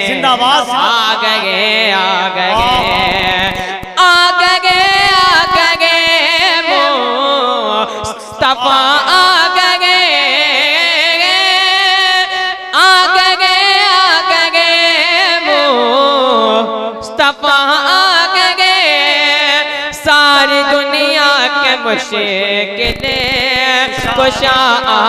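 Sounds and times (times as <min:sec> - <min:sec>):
boy singing into microphone: 0:00.0 - 0:25.0.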